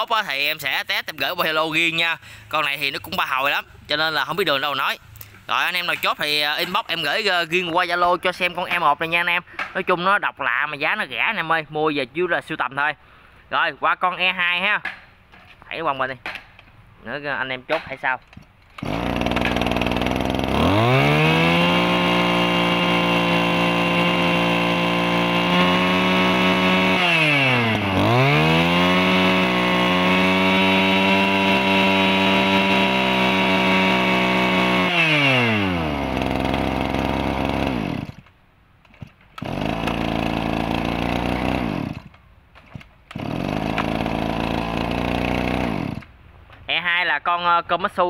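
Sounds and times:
brush cutter engine revving: 0:18.7 - 0:38.3, 0:38.9 - 0:46.1.

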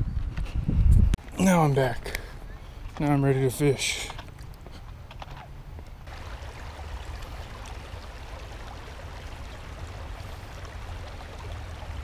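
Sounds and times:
creek water rushing over rocks: 0:06.0 - 0:12.0.

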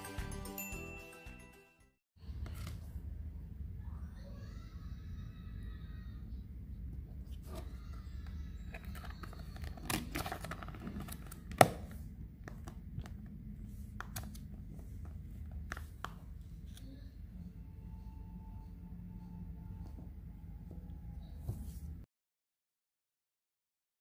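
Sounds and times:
plastic tub clicks and crinkles: 0:08.7 - 0:13.3.

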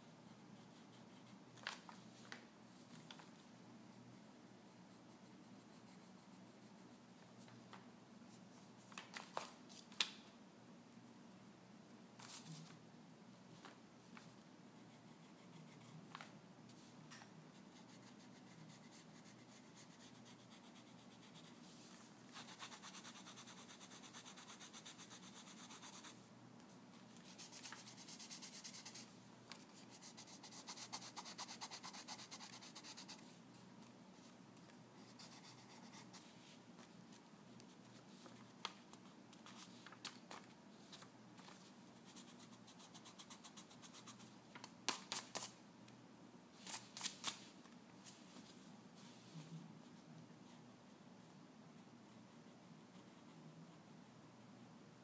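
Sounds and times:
pencil scratching on paper: 0:17.7 - 0:21.6, 0:22.3 - 0:26.2, 0:27.3 - 0:29.1, 0:29.8 - 0:33.2, 0:35.0 - 0:36.3
pencil ticking on paper: 0:22.4 - 0:26.2, 0:29.9 - 0:33.2.

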